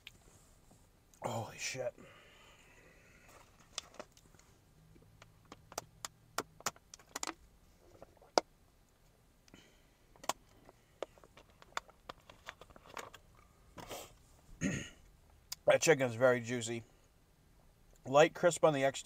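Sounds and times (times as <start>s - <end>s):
soft breath: 1.9s - 3.6s.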